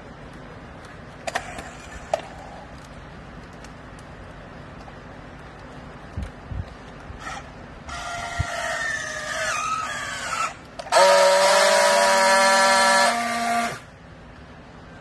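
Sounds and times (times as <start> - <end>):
strapping tool motor whining: 7.2 - 13.9
strapping tool buzzing: 10.9 - 13.8.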